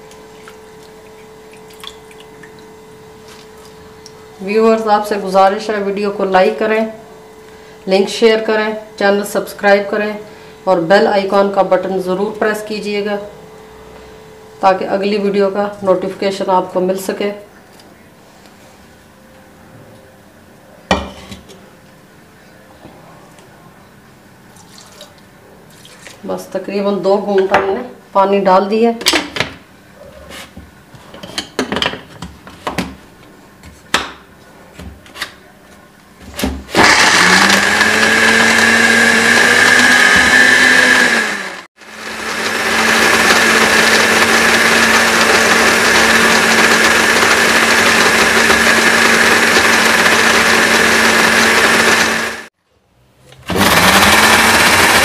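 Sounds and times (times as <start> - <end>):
blender motor grinding: 36.7 - 52.5, 53.4 - 55.0.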